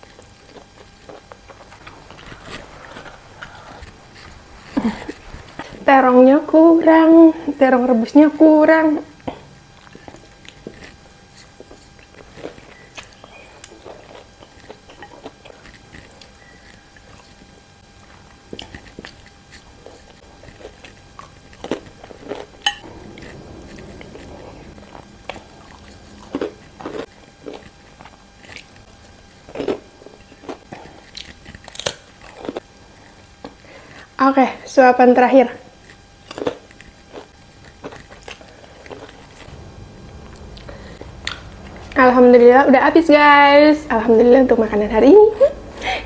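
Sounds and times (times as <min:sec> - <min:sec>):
woman chewing food: 0:00.0 - 0:05.9, 0:09.0 - 0:34.2, 0:35.7 - 0:42.0
cracker crunching: 0:00.1 - 0:05.8, 0:09.2 - 0:33.8, 0:35.8 - 0:42.0.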